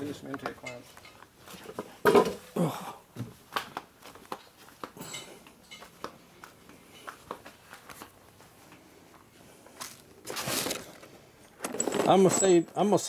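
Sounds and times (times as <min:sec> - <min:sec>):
rummaging through small parts: 0:10.3 - 0:13.0
clatter of hardware: 0:11.6 - 0:12.8.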